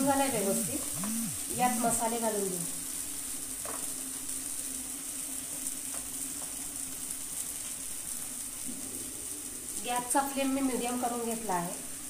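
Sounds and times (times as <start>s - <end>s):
food sizzling in oil: 0.0s - 12.0s
low steady hum: 0.3s - 2.0s.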